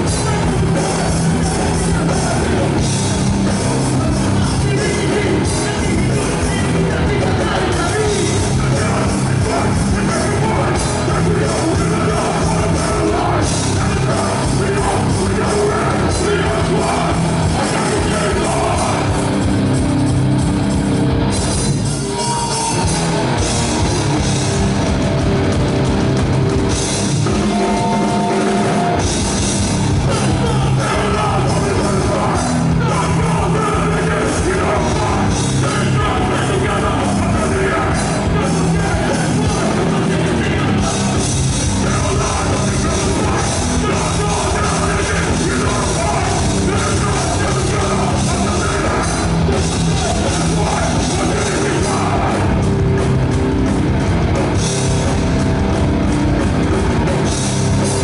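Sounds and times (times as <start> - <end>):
bass guitar: 0.0 - 58.0
drum kit: 0.0 - 58.0
electric guitars: 0.0 - 58.0
people singing into microphones: 3.7 - 19.2, 30.0 - 52.6.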